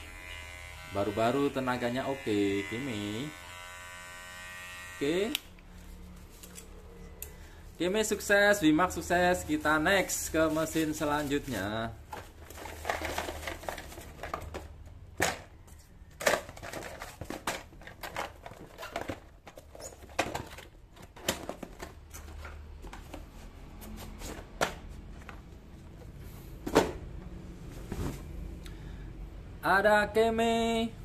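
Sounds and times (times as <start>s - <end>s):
cardboard and paper rustling: 10.4s - 14.8s, 15.6s - 25.4s.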